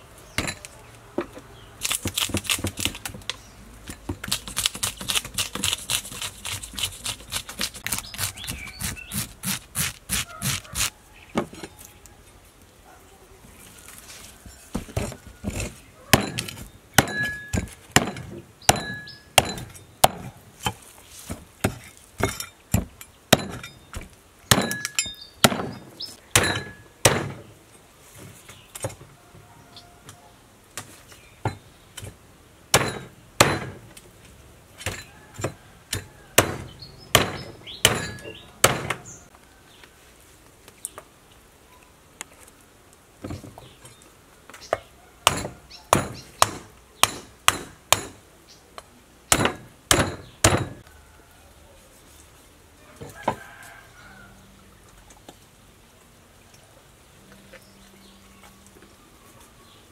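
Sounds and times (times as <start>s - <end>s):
knife scraping fish scales: 4.3s - 10.9s.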